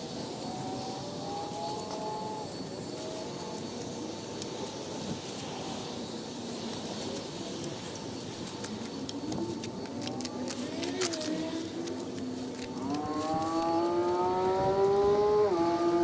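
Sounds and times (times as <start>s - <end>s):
road traffic noise: 0.0s - 16.0s
sharp crackles: 0.0s - 16.0s
vehicle engine revving up and down: 0.4s - 3.6s, 12.6s - 16.0s.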